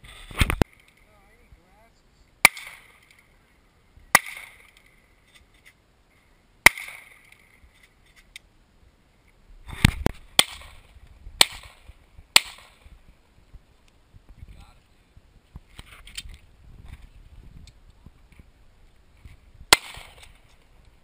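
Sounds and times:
handgun shots: 2.4 - 3.0, 11.4 - 12.8, 19.7 - 20.3.

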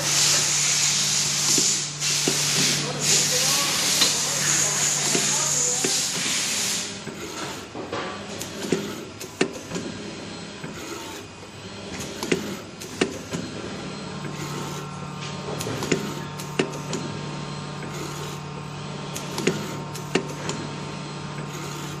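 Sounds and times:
machine low hum: 0.0 - 22.0
sharp mechanical clicks: 15.6 - 17.0, 19.1 - 20.6.

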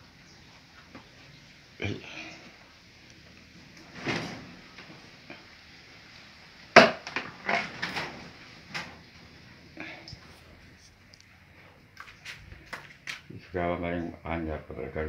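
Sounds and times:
plastic plates clattering: 6.8 - 9.0.

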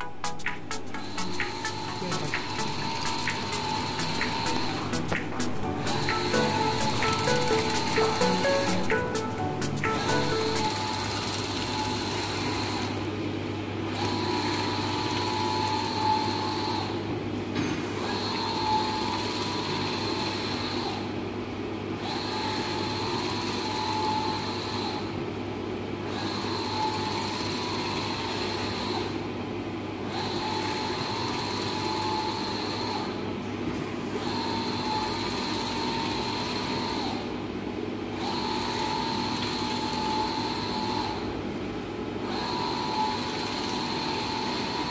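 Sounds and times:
machine hum: 0.0 - 17.2
printer carriage whine: 0.0 - 44.9.

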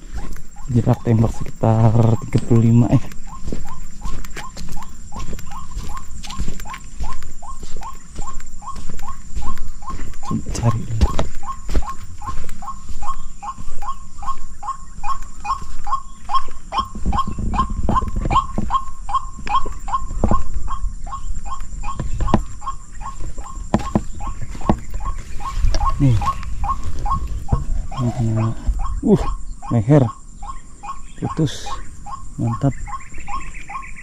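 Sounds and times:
waterhen calling: 0.0 - 34.0.

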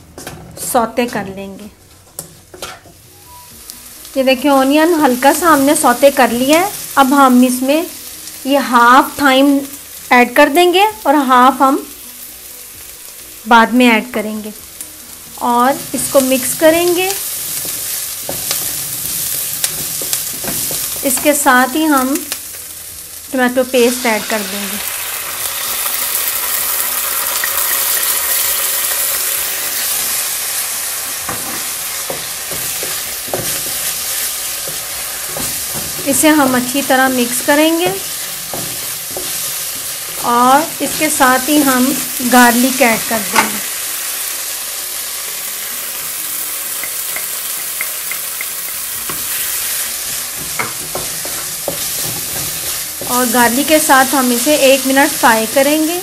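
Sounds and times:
onions sizzling in frying pan: 0.0 - 56.0.

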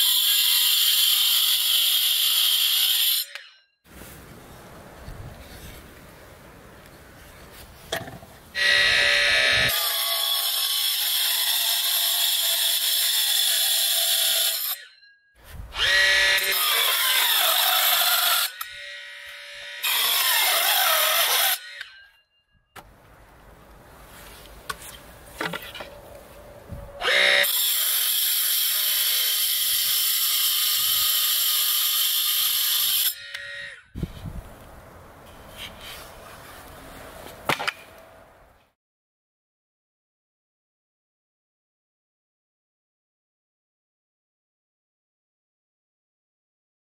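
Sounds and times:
circular saw cutting boards: 8.6 - 14.9, 15.5 - 22.2, 27.0 - 33.9.

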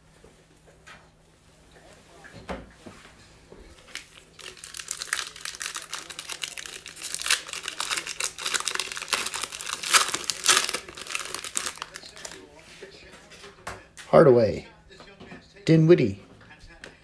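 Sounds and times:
foil wrapper crinkling: 3.8 - 12.5.

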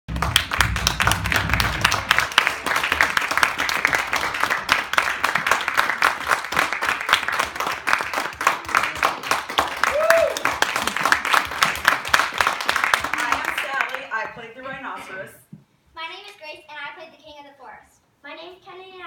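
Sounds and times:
audience applauding: 0.1 - 14.2.

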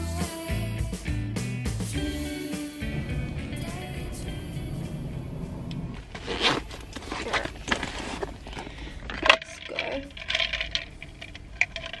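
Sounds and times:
fabric rustling and scraping: 5.9 - 8.6.

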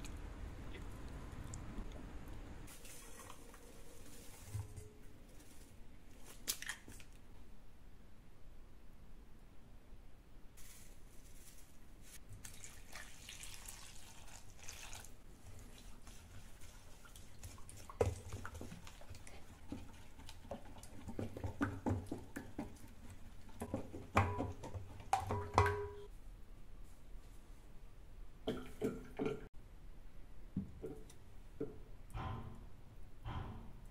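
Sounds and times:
water pouring into bowl: 12.4 - 19.0.

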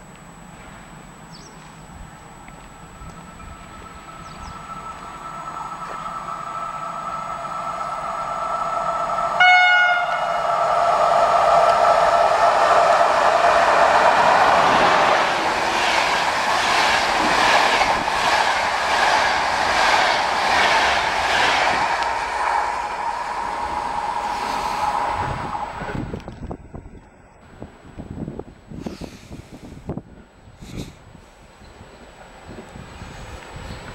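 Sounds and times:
rhythmic clatter of wheels on rails: 0.0 - 33.9
train rushing past: 1.7 - 26.8.

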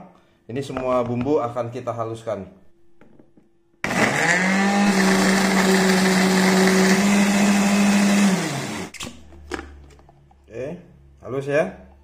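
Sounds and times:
blender motor running: 3.8 - 8.9.

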